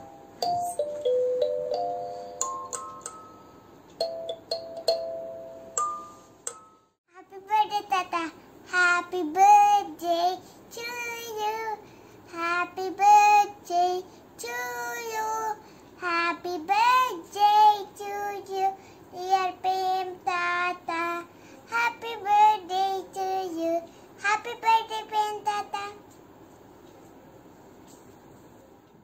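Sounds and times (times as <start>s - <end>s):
girl singing unaccompanied: 7.1s - 26.1s.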